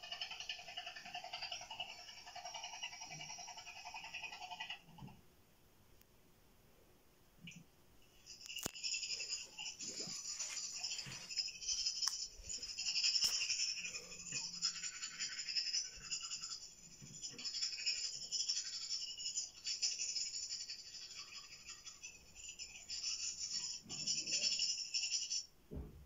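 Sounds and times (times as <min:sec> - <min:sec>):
scratchy brushing strokes: 0:08.5 - 0:24.2.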